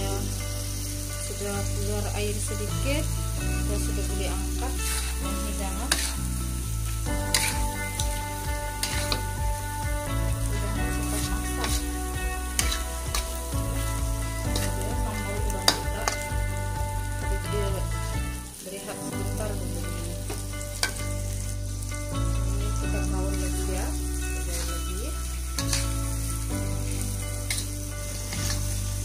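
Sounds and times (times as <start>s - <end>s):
food sizzling in a wok: 0.0s - 29.0s
metal spatula scraping pan: 4.6s - 6.4s, 7.2s - 8.2s, 10.2s - 16.4s, 27.5s - 28.8s.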